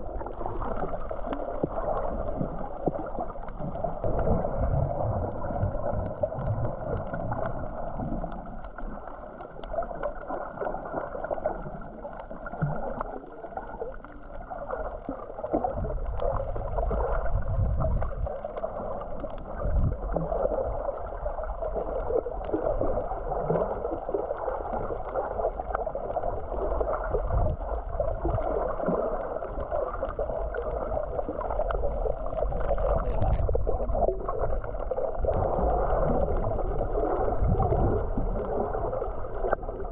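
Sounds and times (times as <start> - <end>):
faint underwater clicks and crackles: 0.0 - 39.9
muffled rush of water: 0.0 - 39.9
low surging rumble: 15.6 - 23.2, 25.9 - 39.9.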